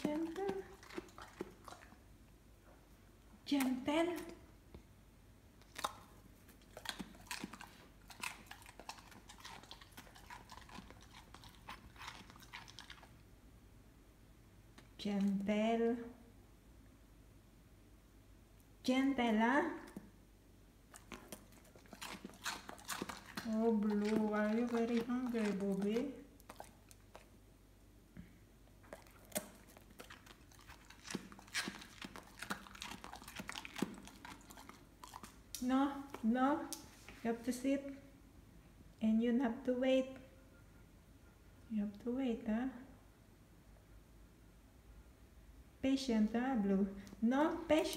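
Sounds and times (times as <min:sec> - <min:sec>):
dog chewing raw vegetable: 0:00.0 - 0:02.1, 0:05.6 - 0:13.3, 0:20.9 - 0:27.4, 0:28.8 - 0:36.3.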